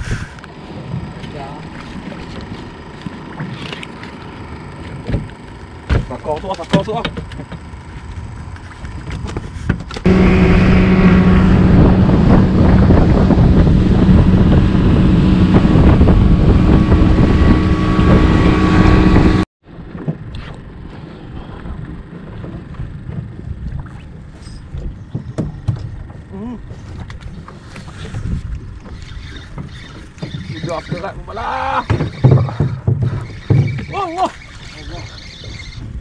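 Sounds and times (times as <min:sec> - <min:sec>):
rushing wind: 0:00.0 - 0:01.2, 0:08.1 - 0:29.3
motorboat engine droning: 0:00.0 - 0:36.0.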